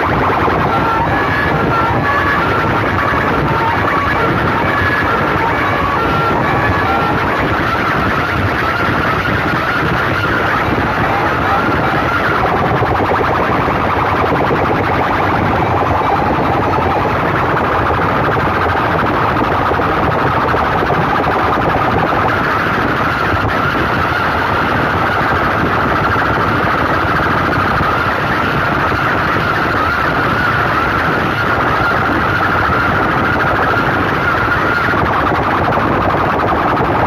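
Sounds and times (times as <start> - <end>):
distorted siren-like tone: 0.0 - 37.0.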